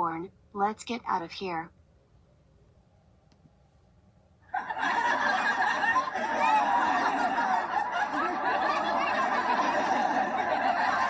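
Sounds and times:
group of people laughing: 0:04.5 - 0:11.0.

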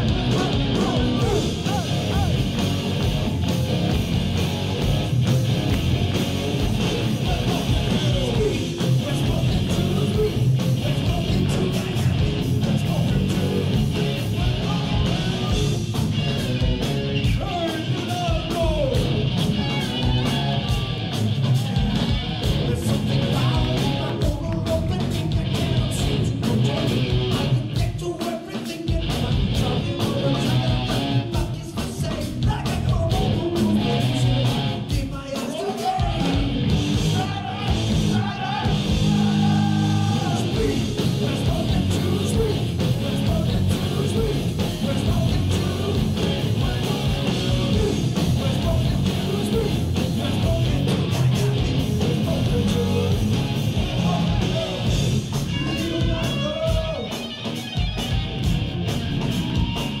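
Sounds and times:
bass guitar: 0:00.0 - 0:28.2, 0:28.8 - 0:35.3, 0:36.0 - 1:00.0
distorted electric guitars: 0:00.0 - 1:00.0
drum kit: 0:00.0 - 1:00.0.

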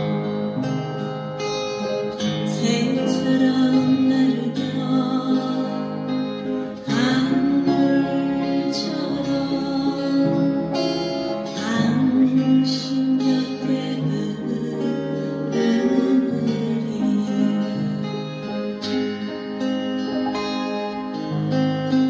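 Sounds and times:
upright piano melody and chords: 0:15.6 - 0:22.0.

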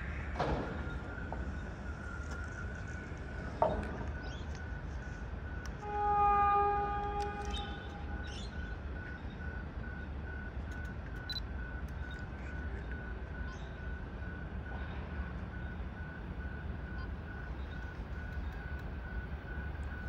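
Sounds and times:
train horn: 0:05.6 - 0:08.4.

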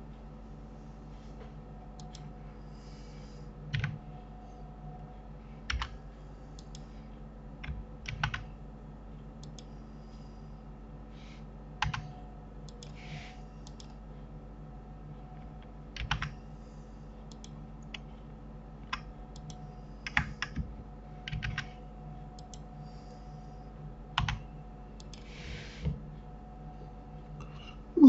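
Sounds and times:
keyboard and mouse clicks: 0:02.0 - 0:02.2, 0:07.6 - 0:08.5, 0:09.4 - 0:09.7, 0:11.8 - 0:12.1, 0:13.6 - 0:14.0, 0:17.3 - 0:18.0, 0:18.9 - 0:20.6, 0:21.2 - 0:21.8, 0:22.4 - 0:22.6, 0:24.2 - 0:24.4.

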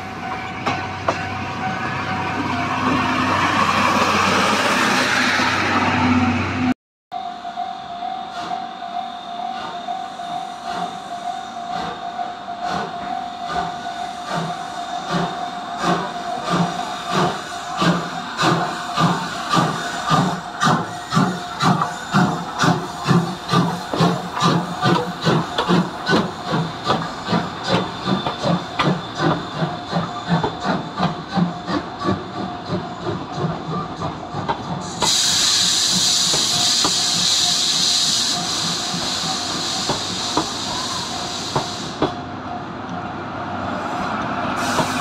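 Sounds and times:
steam hissing: 0:12.6 - 0:32.8, 0:33.4 - 0:42.2, 0:43.7 - 0:45.0
steam locomotive exhaust chuffs: 0:12.6 - 0:42.2.

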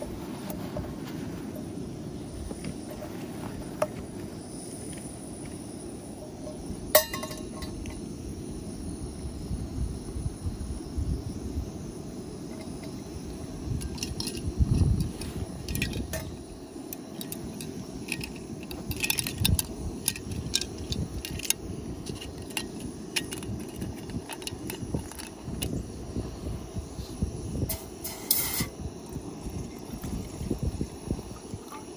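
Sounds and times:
steady low rumble: 0:00.0 - 0:28.0
camping cookware clinking: 0:06.1 - 0:08.1, 0:12.4 - 0:26.0, 0:27.6 - 0:31.9.

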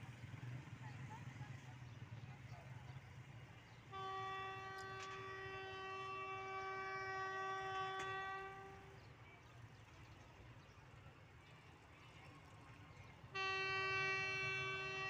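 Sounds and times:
distant locomotive horn blast: 0:03.6 - 0:09.2, 0:13.3 - 0:15.0.

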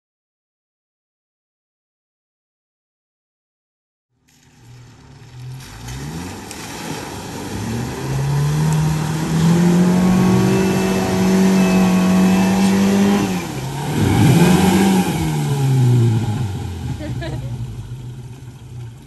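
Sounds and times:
engine revving hard: 0:05.6 - 0:17.3.

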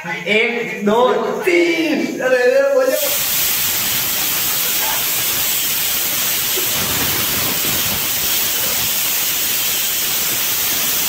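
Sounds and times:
pressure cooker steam hiss: 0:02.9 - 0:11.0.

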